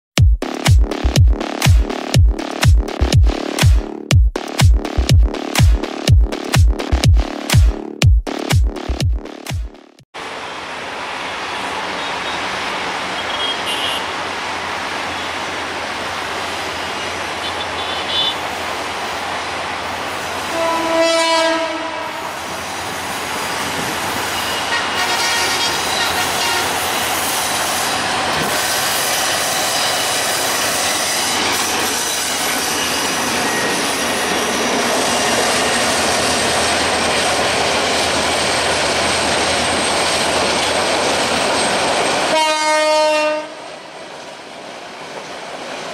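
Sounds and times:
diesel locomotive running: 10.2 - 45.9
locomotive horn: 11.9 - 14.1, 17.0 - 18.4, 20.4 - 22.6, 24.2 - 27.0, 42.3 - 43.6.

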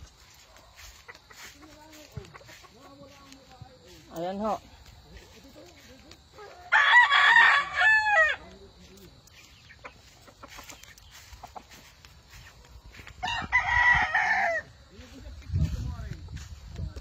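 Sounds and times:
rooster crowing: 6.4 - 8.5, 13.2 - 14.8.

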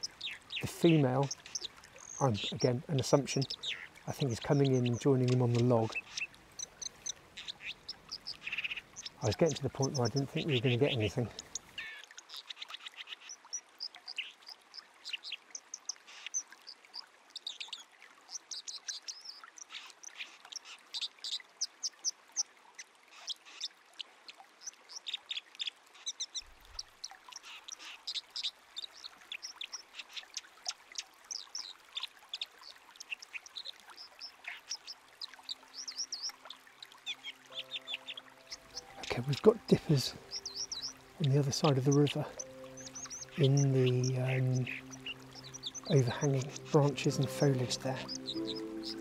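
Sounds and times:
bird singing: 0.0 - 21.7, 31.3 - 49.0
river water rushing: 35.2 - 49.0.

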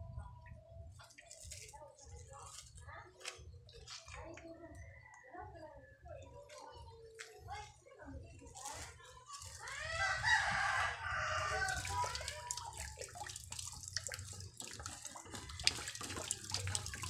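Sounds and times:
rooster crowing: 9.9 - 11.8.

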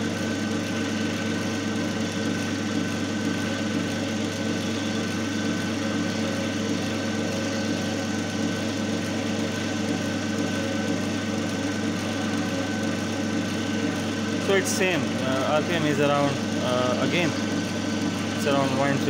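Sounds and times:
electric motor humming: 0.0 - 19.0.

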